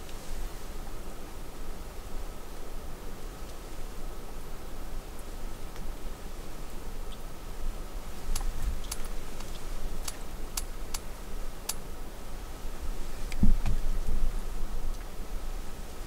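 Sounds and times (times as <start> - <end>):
small sharp clicks: 8.3 - 11.8.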